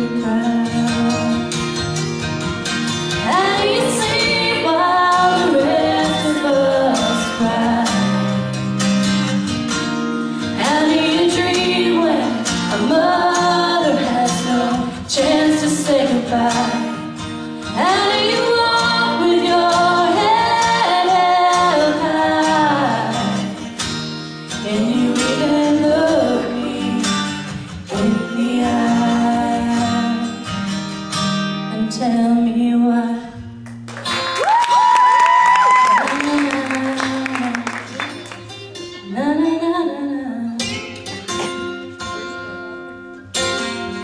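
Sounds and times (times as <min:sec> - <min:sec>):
woman singing into a microphone: 0:00.0 - 0:01.6, 0:03.1 - 0:08.5, 0:10.4 - 0:23.7, 0:24.5 - 0:30.5, 0:31.7 - 0:33.6, 0:35.4 - 0:38.1, 0:38.8 - 0:41.0.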